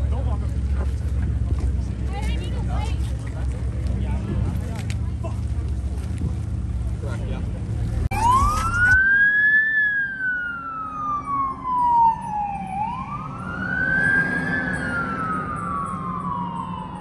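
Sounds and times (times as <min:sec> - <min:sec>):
emergency vehicle siren wailing: 0:08.1 - 0:17.0.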